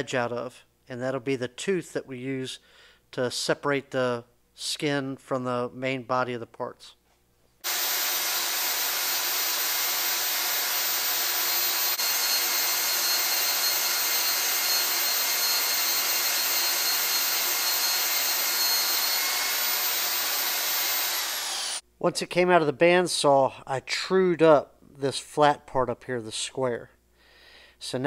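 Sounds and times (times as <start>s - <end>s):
band saw cutting steel: 7.6s - 21.8s.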